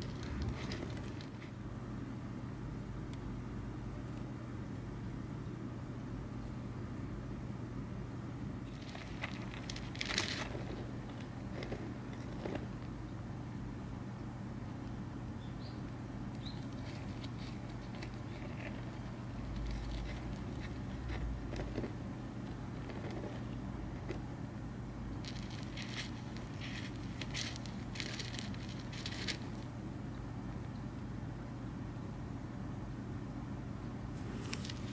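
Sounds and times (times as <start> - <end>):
soil scratching and crackling: 0.0 - 1.6, 8.6 - 13.0, 16.4 - 24.3, 25.2 - 29.7, 34.2 - 34.9
steady low hum: 0.0 - 34.9.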